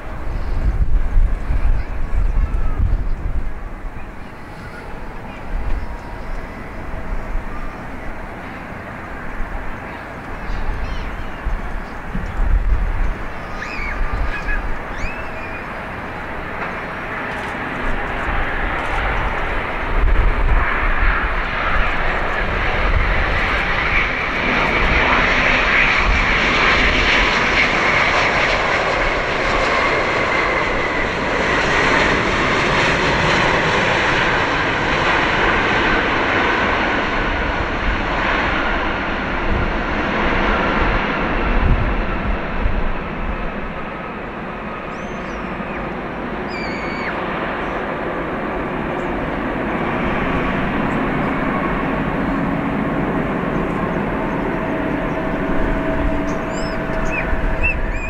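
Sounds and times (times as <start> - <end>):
jet engine rush and whine: 0.0 - 58.0.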